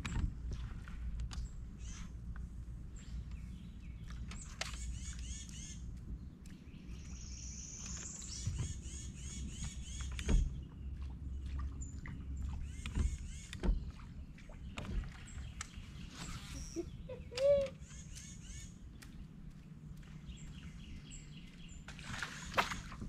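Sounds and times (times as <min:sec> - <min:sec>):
low steady rumble: 0:00.0 - 0:23.0
birds chirping: 0:01.3 - 0:22.6.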